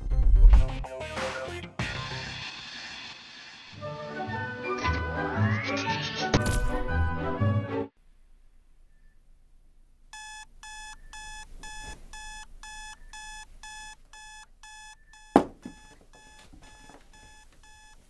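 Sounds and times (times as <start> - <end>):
phone alarm beeping: 10.2 - 18.0
sharp thump: 15.4 - 15.8.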